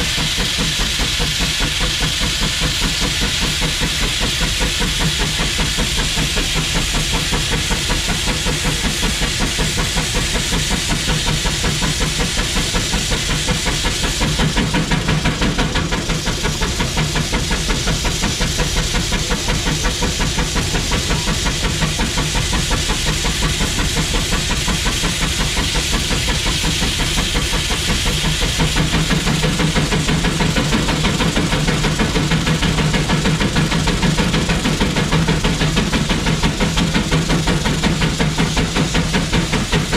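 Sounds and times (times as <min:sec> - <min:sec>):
steam hiss: 0:00.0 - 0:39.9
steam locomotive exhaust beat: 0:00.0 - 0:39.9.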